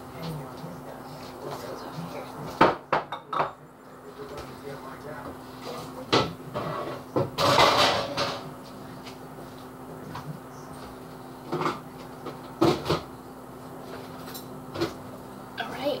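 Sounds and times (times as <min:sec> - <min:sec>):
dishes clattering: 0:02.6 - 0:03.6, 0:06.1 - 0:08.5.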